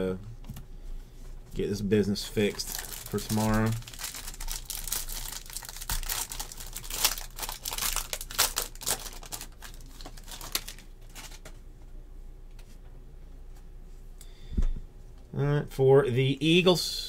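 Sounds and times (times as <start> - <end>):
foil wrapper tearing and crinkling: 2.4 - 11.4.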